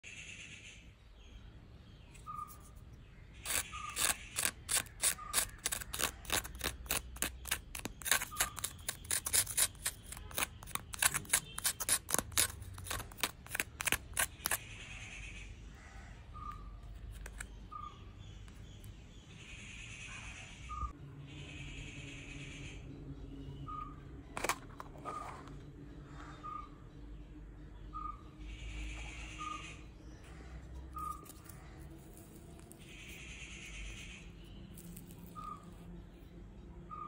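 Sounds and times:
wooden spoon against plastic cup: 0:03.4 - 0:14.6, 0:16.9 - 0:17.6, 0:24.4 - 0:25.6.

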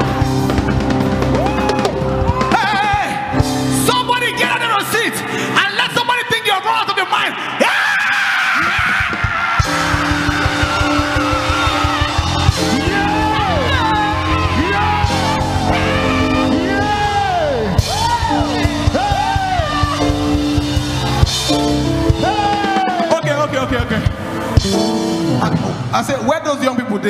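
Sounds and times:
held keyboard chords: 0:00.0 - 0:05.6, 0:09.6 - 0:26.5
band playing fast dance music: 0:00.0 - 0:26.6
quick drum beat: 0:08.8 - 0:16.3.

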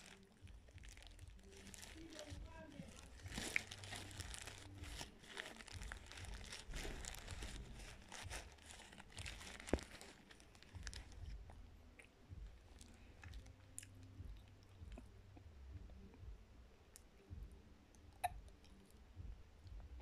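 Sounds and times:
cornstarch crunching and squeaking: 0:00.0 - 0:11.4.

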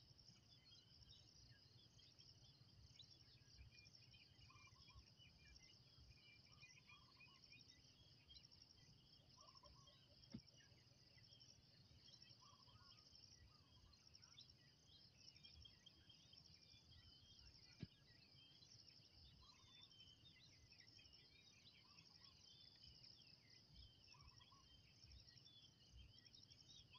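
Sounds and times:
insect chorus chirping: 0:00.1 - 0:26.9.

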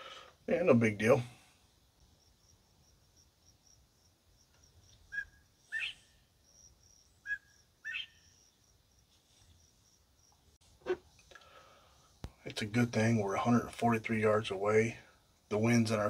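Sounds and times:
pulsing insect chirp: 0:01.9 - 0:10.6.

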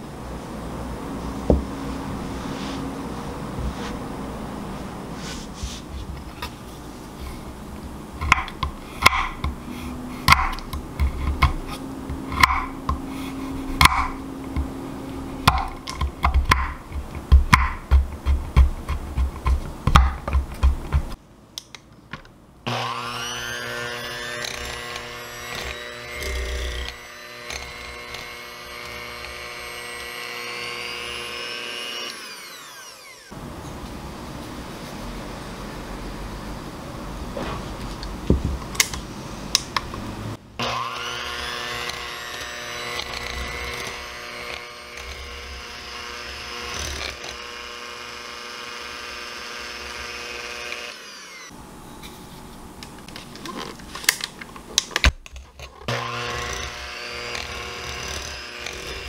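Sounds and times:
knife chopping on wooden board: 0:08.2 - 0:09.6, 0:10.2 - 0:13.1, 0:13.7 - 0:14.8, 0:15.4 - 0:21.2
electric hand mixer running: 0:22.7 - 0:33.4, 0:40.6 - 0:51.6, 0:55.9 - 0:59.0.

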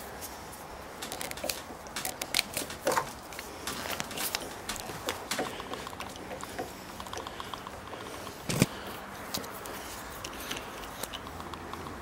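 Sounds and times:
rapid light clicks: 0:01.0 - 0:08.7
wood creaking: 0:01.0 - 0:08.8.

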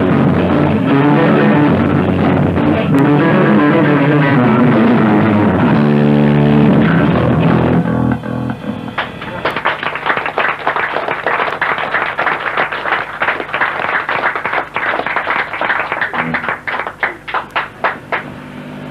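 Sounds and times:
rock music on bass guitar: 0:00.0 - 0:09.7
audience applauding: 0:08.1 - 0:18.4.

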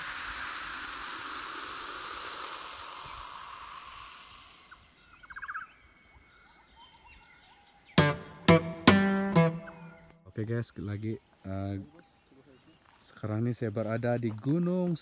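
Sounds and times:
steady hiss: 0:00.0 - 0:05.2
short fast trill: 0:08.0 - 0:10.0.

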